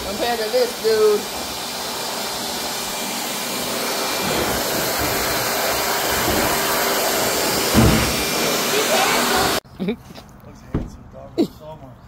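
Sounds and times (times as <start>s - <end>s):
pet dryer blowing air: 0.0s - 9.6s.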